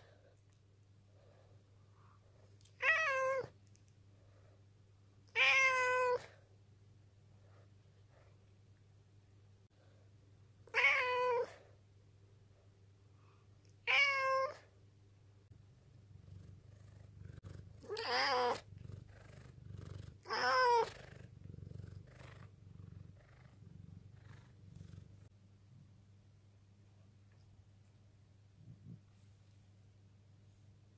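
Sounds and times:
cat meowing: 2.8s - 3.5s, 5.3s - 6.3s, 10.7s - 11.6s, 13.8s - 14.6s, 17.8s - 18.6s, 20.2s - 21.1s.

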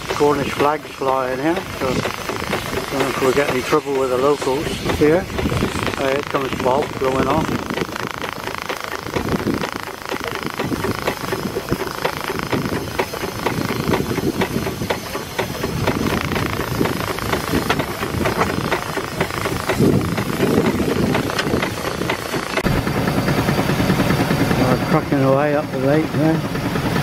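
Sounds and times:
steam hissing from safety valve: 0.0s - 22.6s
wind on microphone: 4.2s - 8.2s, 9.0s - 9.8s, 15.6s - 22.8s.

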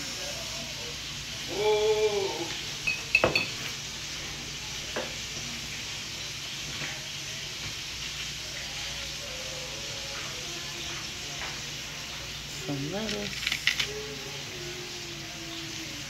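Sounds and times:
metal fork clinking: 2.9s - 3.6s.

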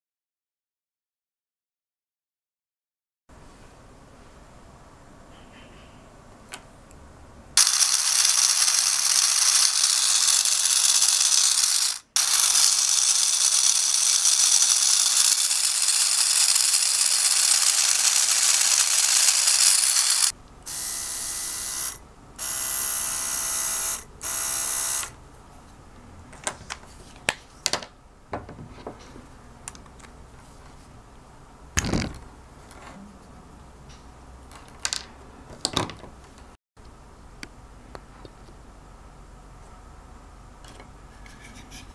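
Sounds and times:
small motor spinning: 7.6s - 25.2s.

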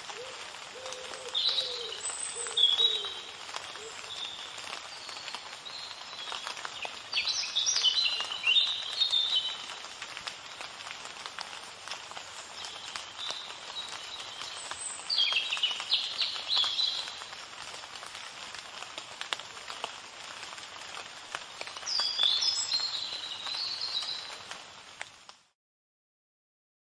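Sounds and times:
steady hiss: 0.0s - 25.4s
songbird chirping: 0.2s - 9.8s, 12.4s - 17.4s, 21.4s - 24.5s.

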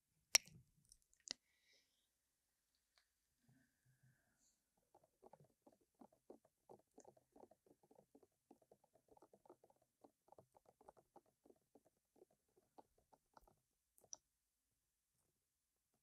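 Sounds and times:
wet mouth clicks and smacks: 0.4s - 1.4s.

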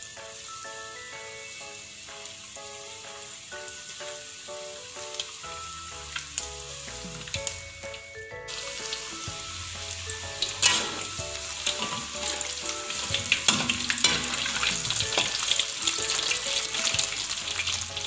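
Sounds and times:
chicken deep-frying in oil: 0.0s - 18.0s
metal spatula clinking on wok: 10.4s - 11.1s, 11.7s - 16.2s.

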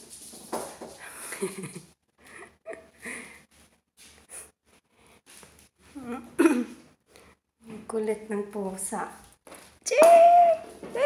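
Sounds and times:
person breathing and laughing softly: 1.0s - 3.5s.

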